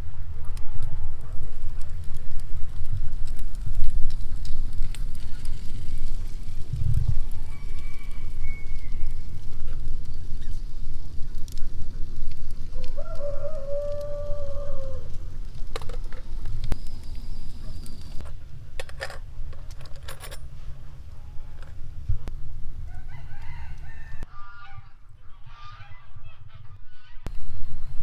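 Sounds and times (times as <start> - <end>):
rooster crowing: 7.2 - 9.2, 12.7 - 15.1, 22.9 - 24.3.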